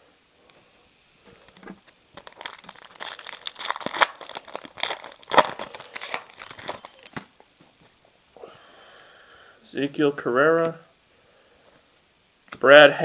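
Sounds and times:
foil wrapper crinkling and tearing: 1.8 - 7.2.

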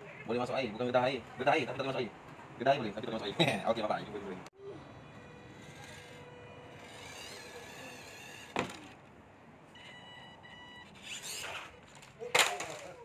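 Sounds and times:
small electric motor whining: 4.6 - 9.0, 9.8 - 12.1.

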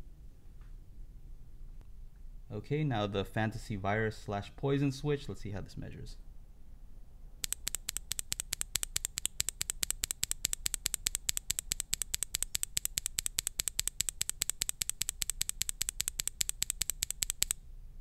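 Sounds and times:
keyboard switch clacking: 7.4 - 17.6.

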